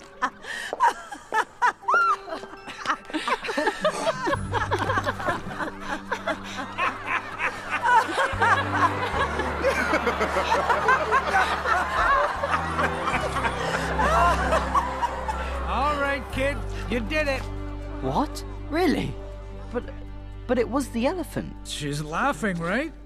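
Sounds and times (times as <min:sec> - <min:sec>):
crowd laughing: 0:00.0 - 0:17.1
film music with low notes: 0:01.4 - 0:23.0.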